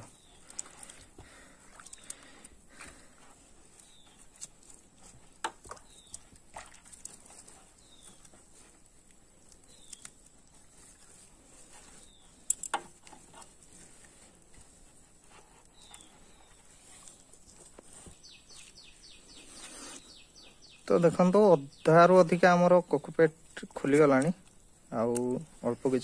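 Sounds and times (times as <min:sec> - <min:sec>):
wet squelching: 0:00.0 - 0:15.0
small water splashes: 0:00.4 - 0:02.9, 0:05.4 - 0:07.5.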